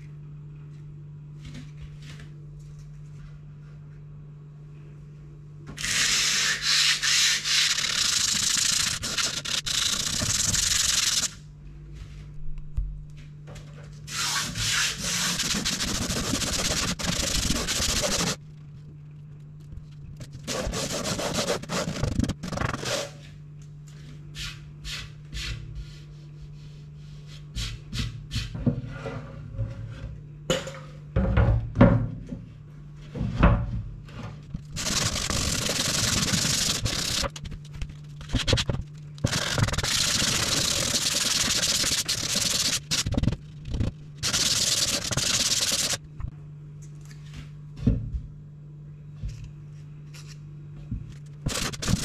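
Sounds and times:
low steady hum: 0.0s - 52.0s
sandpaper rubbing wood: 5.8s - 11.4s, 14.1s - 18.4s, 20.5s - 23.2s, 34.8s - 37.3s, 38.2s - 46.0s, 51.5s - 52.0s.

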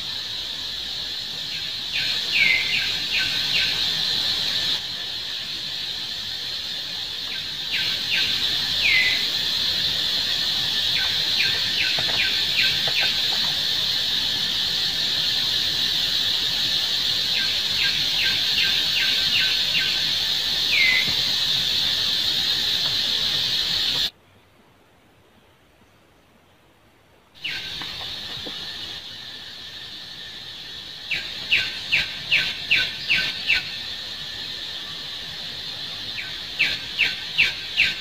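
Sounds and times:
high insect drone: 0.0s - 24.1s, 27.4s - 38.0s
bird chirping: 1.4s - 4.8s, 7.0s - 15.6s, 16.2s - 24.1s, 27.4s - 29.0s, 31.0s - 34.0s.

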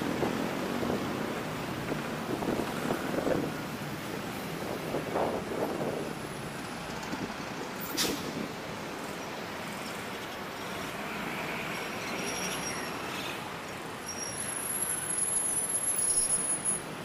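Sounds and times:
passing road traffic: 0.0s - 17.0s.

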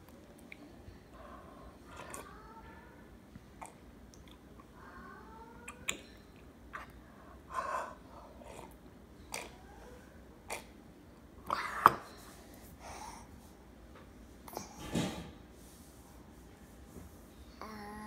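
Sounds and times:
child breathing: 12.3s - 13.4s.

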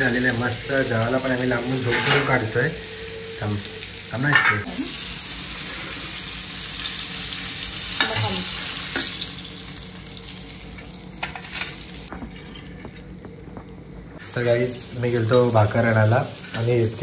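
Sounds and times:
fish sizzling in hot oil: 0.0s - 12.1s, 14.2s - 17.0s.

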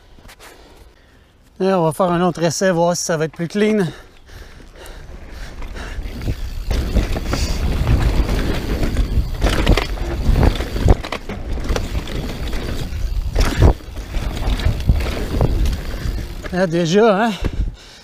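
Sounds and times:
bike tyres rumbling over dirt: 3.3s - 17.8s
wind buffeting microphone: 4.3s - 16.6s, 17.3s - 17.9s
bike clattering on landing: 6.2s - 16.6s.

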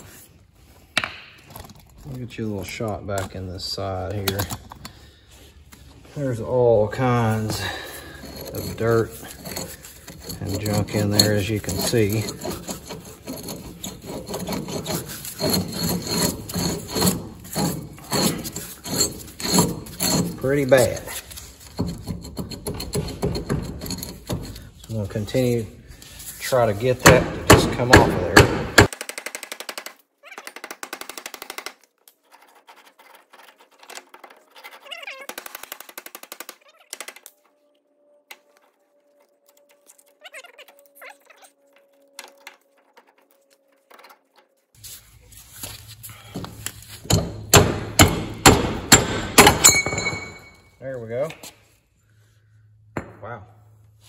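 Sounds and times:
gritty scraping of seized hub: 1.4s - 27.1s, 31.8s - 37.5s, 38.1s - 49.7s.

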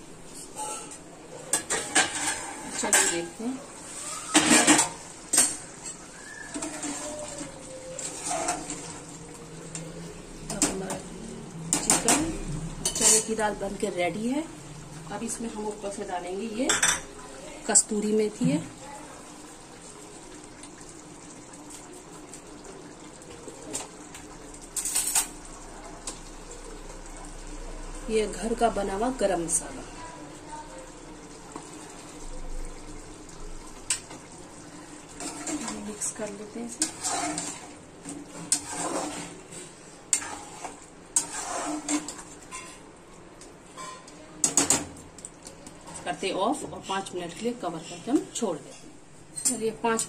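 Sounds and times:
curry simmering hiss: 1.2s - 48.6s
spoon stirring thick curry: 35.1s - 42.8s.

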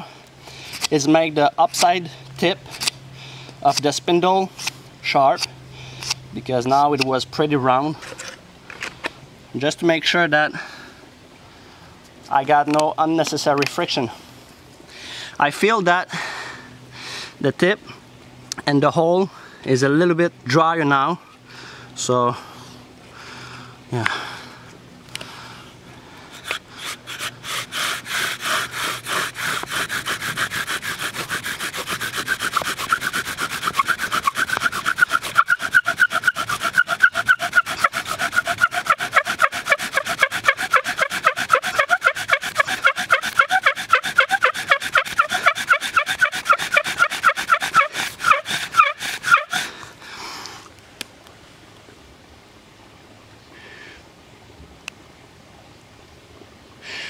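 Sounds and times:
bow drill squeaking rub: 26.3s - 49.7s.

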